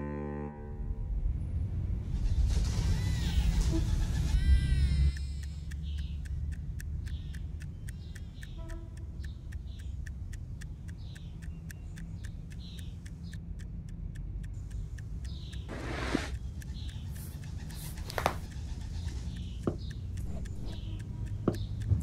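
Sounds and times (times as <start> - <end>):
alarm clock ticking: 4.2 - 22.0
low steady rumble: 19.6 - 22.0.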